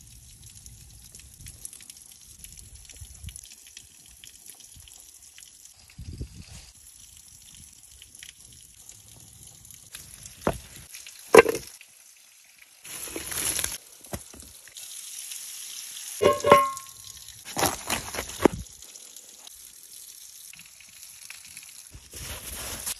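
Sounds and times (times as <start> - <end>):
clay knocks and scrapes: 11.4 - 11.6, 16.2 - 16.8
ringing clink of clay lid: 16.2 - 16.9.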